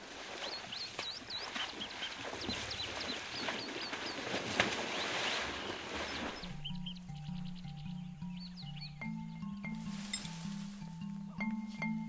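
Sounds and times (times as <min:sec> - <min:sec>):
birds chirping: 0:00.0 - 0:12.0
soft hiss: 0:09.8 - 0:11.8.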